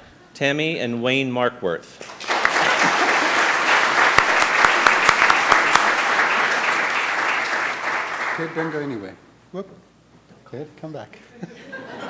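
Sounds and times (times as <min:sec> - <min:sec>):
congregation applauding: 0:02.0 - 0:09.2.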